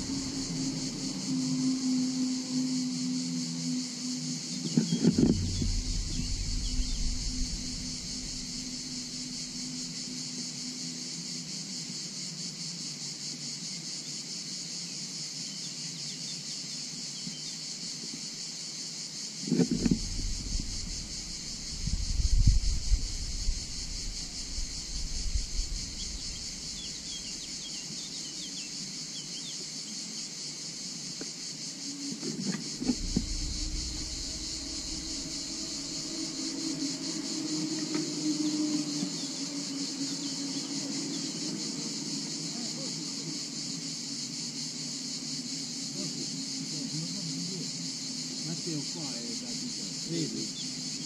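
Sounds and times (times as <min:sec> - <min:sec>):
faint low hum: 0:00.0 - 0:10.2, 0:19.5 - 0:28.7, 0:32.5 - 0:43.4
insects buzzing high-pitched: 0:00.0 - 0:51.0
wind gust on microphone: 0:04.6 - 0:09.6, 0:19.4 - 0:27.4, 0:32.4 - 0:39.0.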